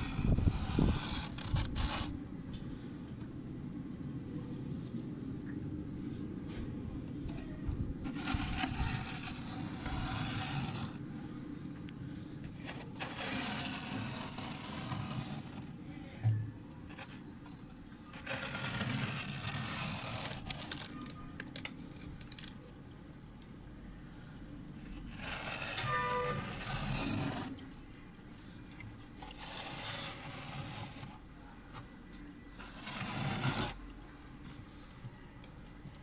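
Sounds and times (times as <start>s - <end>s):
fingers scraping frost: 0.0s - 2.2s, 8.0s - 11.0s, 12.5s - 15.8s, 18.1s - 21.0s, 24.8s - 27.6s, 29.2s - 31.2s, 32.6s - 33.8s
low steady hum: 0.0s - 36.0s.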